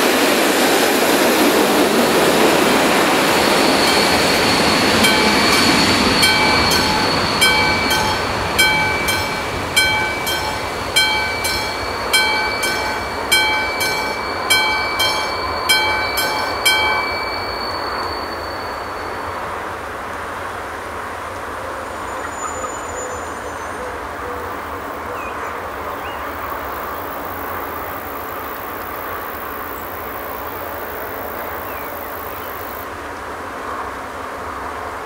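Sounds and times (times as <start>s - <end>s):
train rolling past: 0.0s - 35.0s
thin steady high tone: 2.3s - 19.7s
crossing warning bell: 2.3s - 19.8s.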